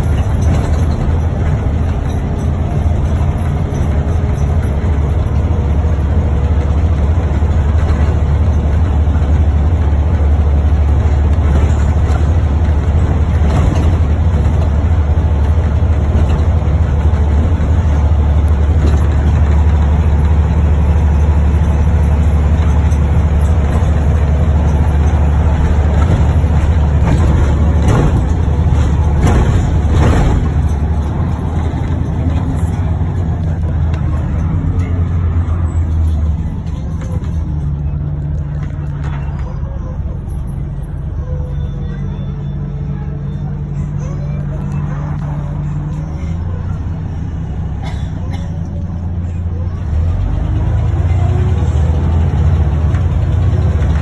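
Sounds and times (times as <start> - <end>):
bus engine drone: 0.0 - 54.0
short rattles: 11.2 - 39.4.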